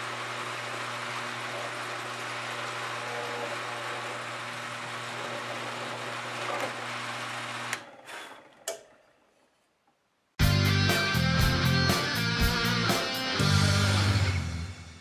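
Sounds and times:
drill press drilling wood: 0.0 - 9.0.

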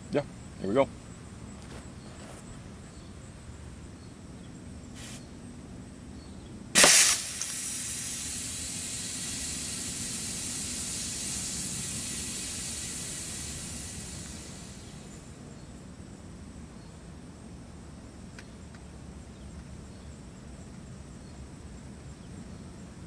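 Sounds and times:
pneumatic gun blast: 5.0 - 5.2, 6.7 - 15.3
air hissing: 5.0 - 5.3, 6.8 - 15.4.

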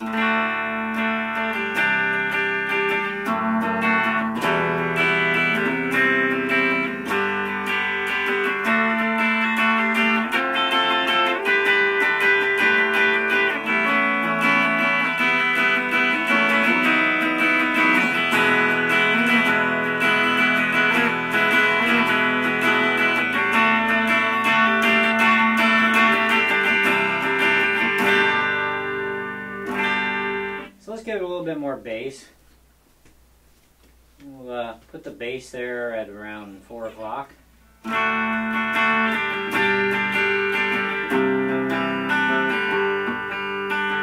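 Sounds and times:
clean electric guitar chords: 0.0 - 31.1, 36.4 - 44.0.

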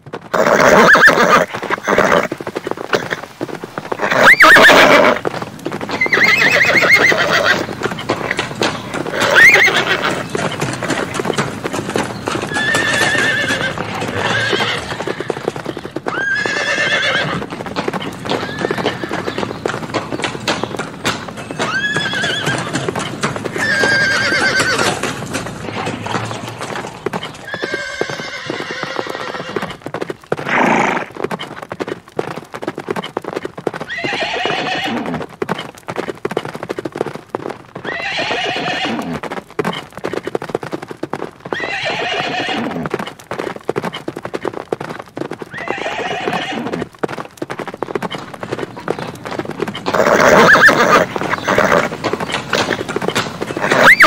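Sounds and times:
hoofbeats clattering: 0.0 - 54.0
horse neighing and whinnying: 0.3 - 5.3, 6.0 - 8.4, 9.0 - 11.1, 12.4 - 17.5, 18.3 - 19.3, 21.5 - 25.1, 25.7 - 29.8, 30.4 - 31.1, 33.9 - 35.3, 37.8 - 39.2, 41.5 - 42.9, 45.5 - 46.9, 49.8 - 54.0.

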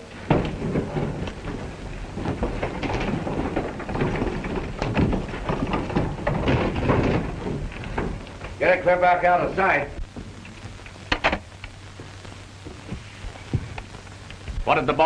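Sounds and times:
wooden knocks and clatter: 0.0 - 8.6
wood scraping over rocky ground: 0.1 - 10.4.

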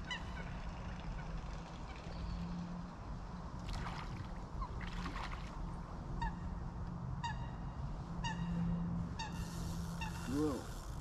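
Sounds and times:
waterfowl honking: 9.2 - 10.7.

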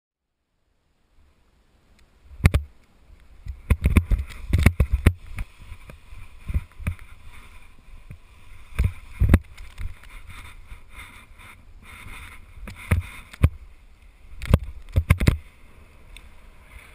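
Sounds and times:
wind buffeting microphone: 3.4 - 16.9.

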